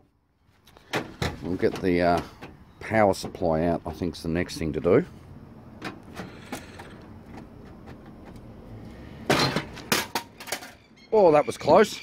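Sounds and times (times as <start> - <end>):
metal clattering on concrete: 9.3 - 10.8.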